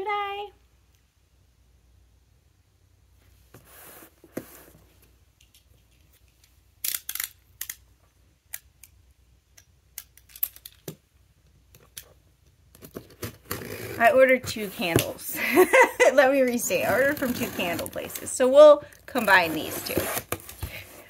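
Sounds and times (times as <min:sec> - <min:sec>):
soft rustle: 0:03.1 - 0:06.6.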